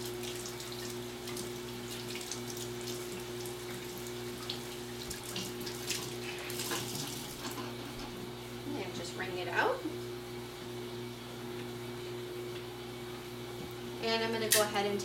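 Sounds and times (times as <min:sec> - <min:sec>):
faucet water splashing on cloth: 0:00.0 - 0:07.6.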